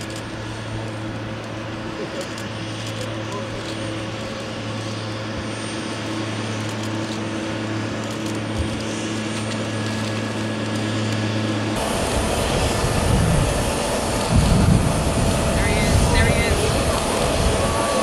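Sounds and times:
tow tractor engine hum: 0.0 - 18.0
airport apron rumble: 11.5 - 18.0.

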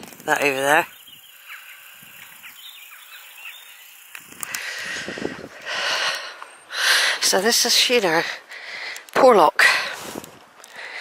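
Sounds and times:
faint high bird chirps: 0.4 - 4.1
rustling noise: 9.9 - 10.8.

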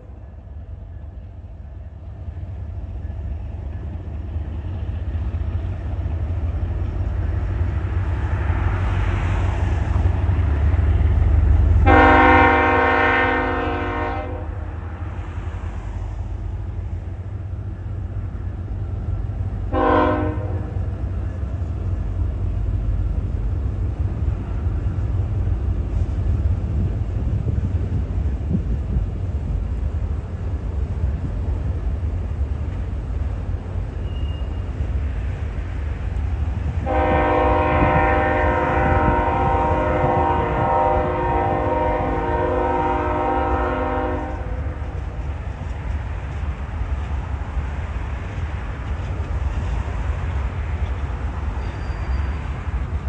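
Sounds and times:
train rumble: 0.0 - 53.0
train air horn blast: 11.8 - 14.7, 19.7 - 20.9, 36.8 - 44.9.

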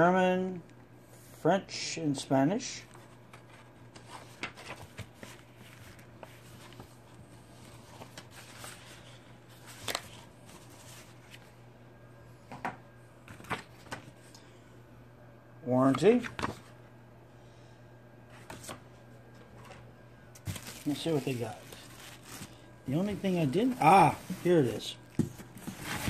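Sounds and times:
paper and plastic rustling: 2.8 - 11.5, 18.3 - 26.0.

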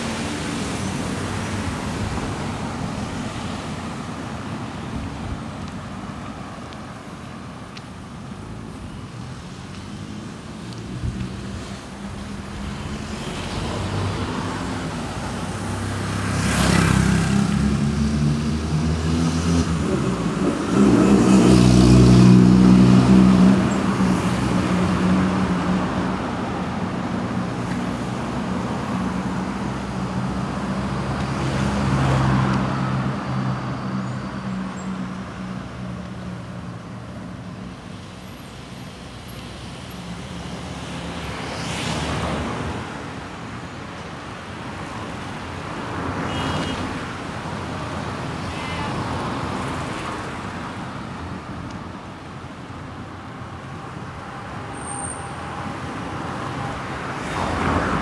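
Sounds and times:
vehicles rushing past: 0.0 - 58.0.

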